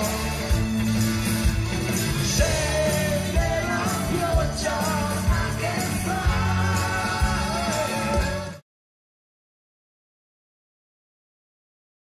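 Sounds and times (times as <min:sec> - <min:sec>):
pop band playing live: 0:00.0 - 0:08.6
person singing: 0:02.3 - 0:08.6.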